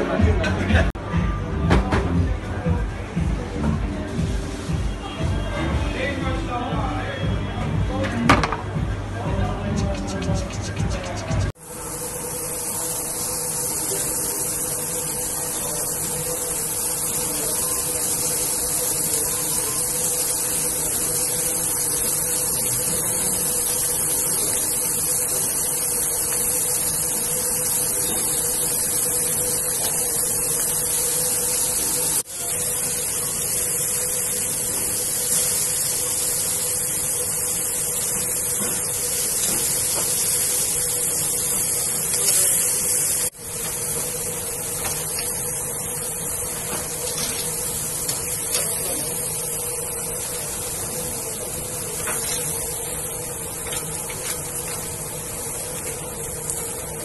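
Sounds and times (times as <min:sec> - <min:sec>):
meat sizzling on a grill: 0:11.5 - 0:57.0.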